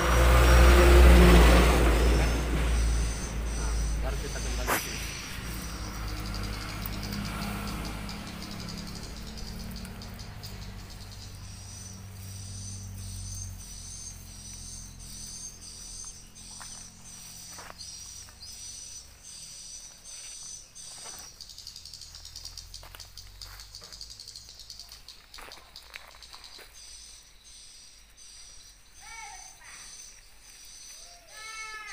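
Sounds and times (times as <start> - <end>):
insect pulsed trill: 0.0 - 31.9
hands rustling string and leaves: 0.1 - 14.7.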